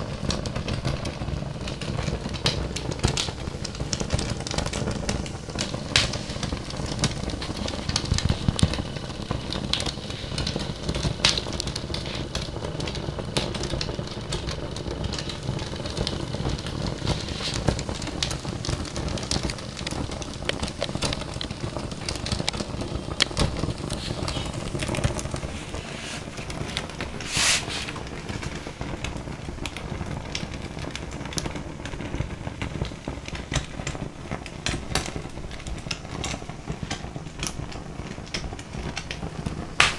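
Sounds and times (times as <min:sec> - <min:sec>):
fire crackling and popping: 0:00.0 - 0:39.9
brief hiss: 0:27.2 - 0:27.9.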